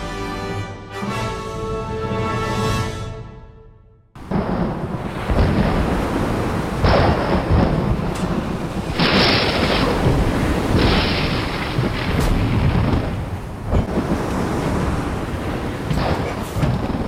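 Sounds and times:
deep rumbling thunder: 4.2s - 17.0s
rain and wind rushing: 4.2s - 17.0s.

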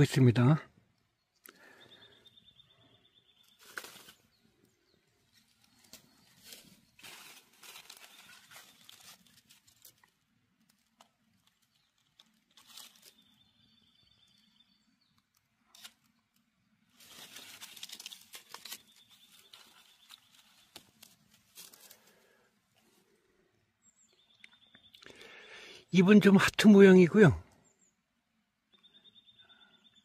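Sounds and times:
dry leaves rustling and crackling: 3.4s - 4.4s, 5.3s - 13.6s, 16.9s - 22.2s.

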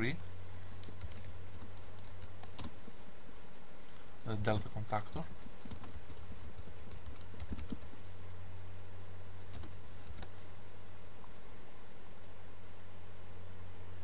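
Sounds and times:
steady low hum: 0.0s - 14.0s
keyboard typing: 0.1s - 3.6s, 4.2s - 8.2s, 9.5s - 10.4s.

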